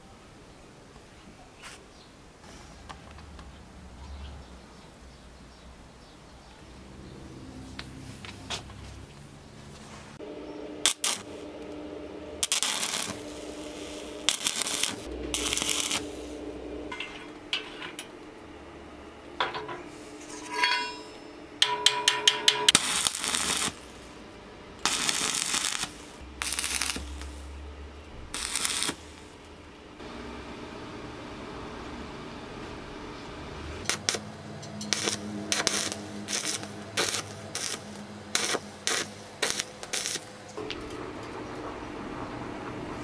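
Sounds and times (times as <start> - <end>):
arc welding crackle: 10.8 - 18.3, 22.5 - 27.6, 28.2 - 29.4, 33.8 - 41.0.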